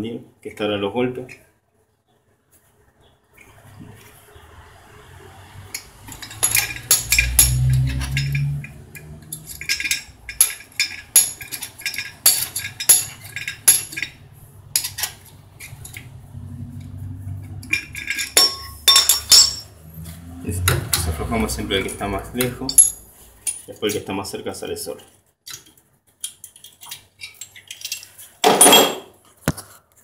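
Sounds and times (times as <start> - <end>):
metal tool clicks and clinks: 5.7 - 16.1, 17.5 - 19.7, 22.4 - 24.1.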